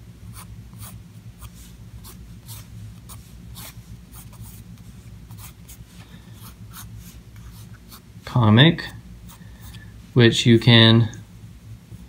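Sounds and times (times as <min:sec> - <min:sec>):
pencil scratching on paper: 0:00.3 - 0:05.8, 0:06.4 - 0:08.0.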